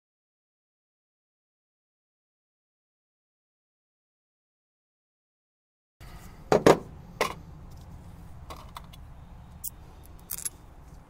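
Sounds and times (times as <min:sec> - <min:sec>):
metal tools clinking: 0:09.6 - 0:10.6.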